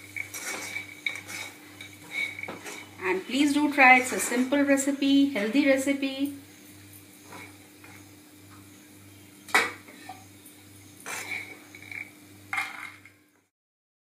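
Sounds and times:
spoon scraping a wok: 0.0 - 4.8, 11.0 - 13.1
low steady hum: 0.0 - 13.5.

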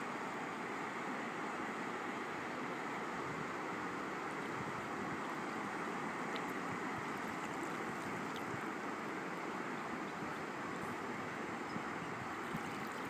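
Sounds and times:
shallow water rushing over stones: 5.2 - 13.0.

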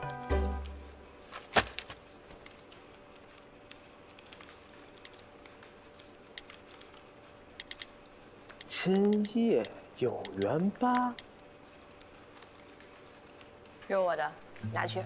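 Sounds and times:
faint room hum: 0.0 - 15.0
light clicks: 3.2 - 11.3.

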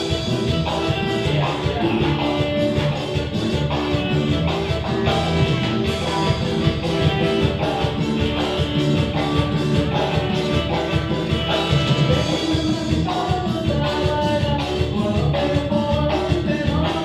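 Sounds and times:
live latin dance band: 0.0 - 17.0.

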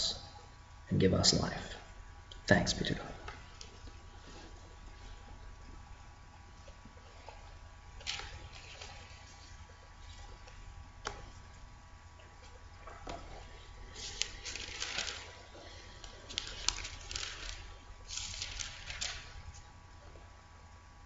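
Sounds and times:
steady low hum: 0.0 - 21.0
paper rustling: 7.0 - 11.5, 12.4 - 19.7
pages turned: 12.4 - 19.7.

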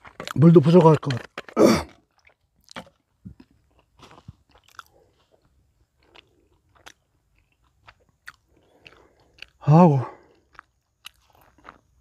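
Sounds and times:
person chewing: 1.2 - 12.0.

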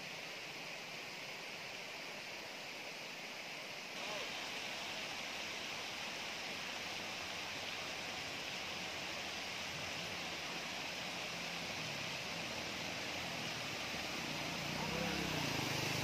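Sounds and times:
floodwater rushing: 4.0 - 16.0
motorcycle engines humming: 13.4 - 16.0.

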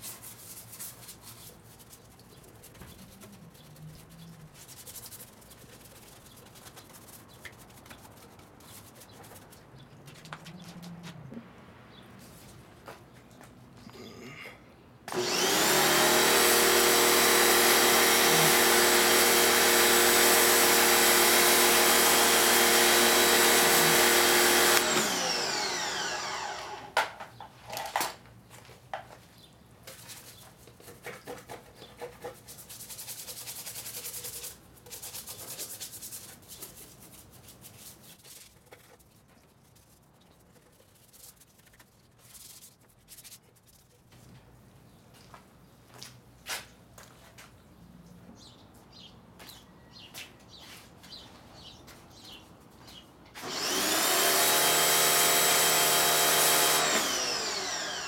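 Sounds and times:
pressure washer motor running: 15.1 - 26.9, 53.4 - 58.0
scrubbing wet soapy parts: 29.9 - 44.2.

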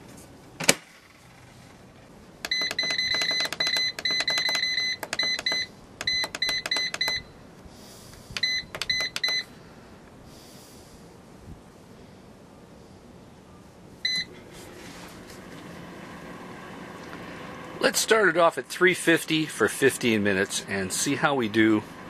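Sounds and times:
control panel beeping: 2.4 - 7.3, 8.4 - 9.5, 14.0 - 14.3.

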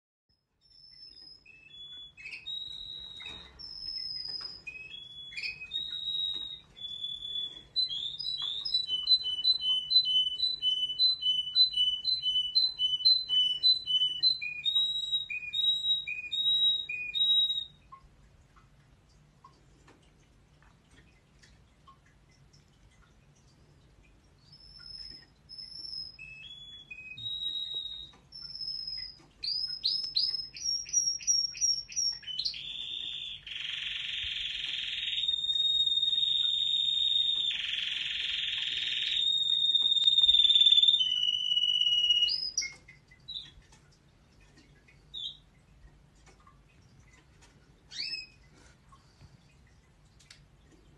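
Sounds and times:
bird chirps: 0.3 - 18.0, 24.4 - 43.6, 47.9 - 48.5
canary singing: 0.3 - 18.0, 24.4 - 43.7, 45.0 - 45.5, 47.9 - 48.4.

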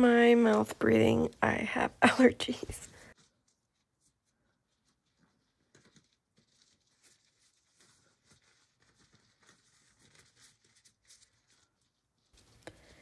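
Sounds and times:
gloved hands pressing moss: 2.9 - 13.0.

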